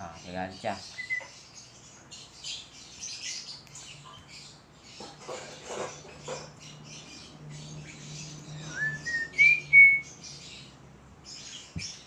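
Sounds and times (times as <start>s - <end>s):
lovebird chirping: 0.6s - 5.3s, 5.9s - 12.0s
bird whistled notes: 1.0s - 1.4s, 8.6s - 10.2s.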